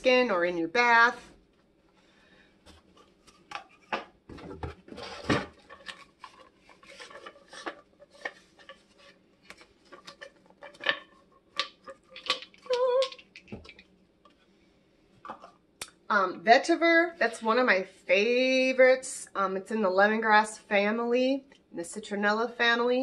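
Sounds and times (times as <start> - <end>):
packaging rustling: 2.7 - 13.9.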